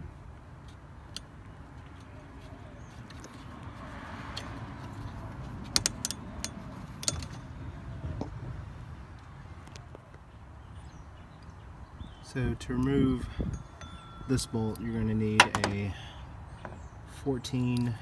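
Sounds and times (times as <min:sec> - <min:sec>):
hand tools clinking: 0:13.6 - 0:15.9.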